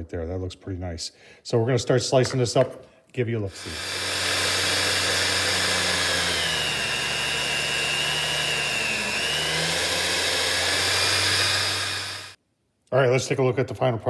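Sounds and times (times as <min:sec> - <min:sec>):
meat slicer motor humming: 0:03.6 - 0:12.4.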